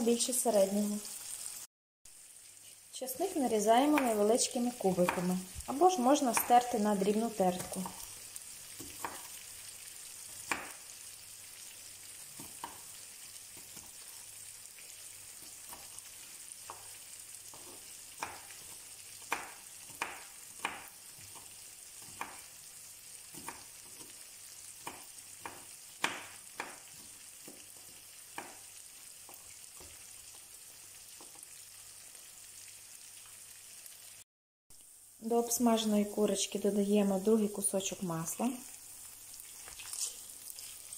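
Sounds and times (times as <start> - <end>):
knife chopping on wooden board: 6.2 - 6.6, 8.8 - 9.3, 10.4 - 10.8, 12.4 - 12.9, 16.6 - 22.5, 23.3 - 24.1, 24.8 - 28.7.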